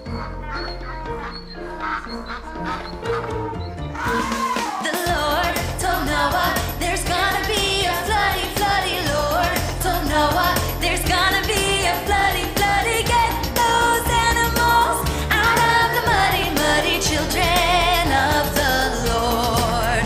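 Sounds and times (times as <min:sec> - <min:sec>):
children singing: 0:00.0 - 0:19.7.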